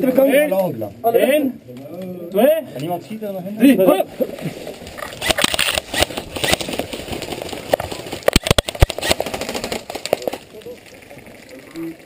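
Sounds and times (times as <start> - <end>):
sharp cracks: 4.9 - 11.9
sharp clicks and knocks: 7.7 - 9.2.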